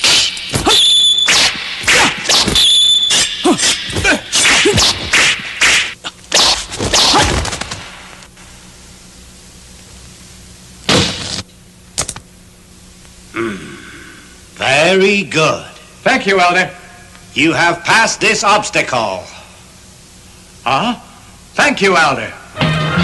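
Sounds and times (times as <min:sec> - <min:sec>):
sword swishes and whacks: 0:00.0 - 0:07.9.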